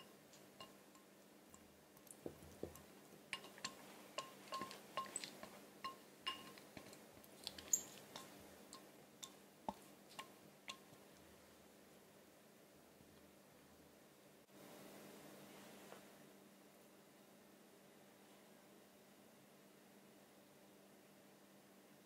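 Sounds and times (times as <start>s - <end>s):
small ringing clicks and clinks: 3.4s - 6.6s, 7.4s - 8.3s.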